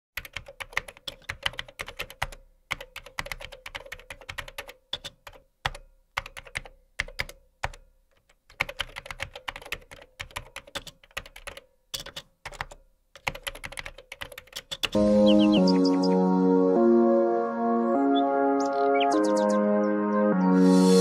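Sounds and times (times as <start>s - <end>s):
computer keyboard typing: 0.2s - 15.0s.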